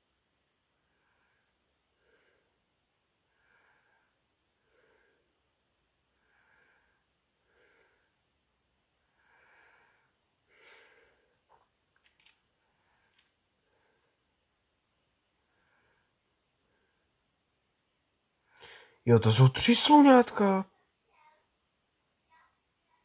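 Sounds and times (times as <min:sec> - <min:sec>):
person breathing softly: 0:00.7 - 0:08.4, 0:09.0 - 0:14.5, 0:15.3 - 0:17.3, 0:18.4 - 0:19.0.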